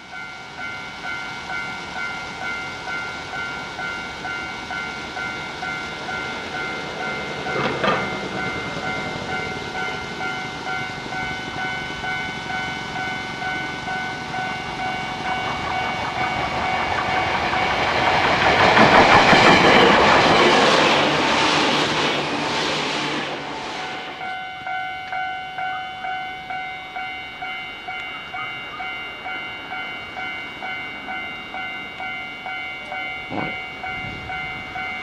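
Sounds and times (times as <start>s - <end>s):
level crossing warning bell: 0.0s - 21.3s, 23.5s - 35.0s
electric train passing: 0.0s - 35.0s
wheel clatter over rail joints: 5.7s - 11.2s, 13.4s - 22.5s.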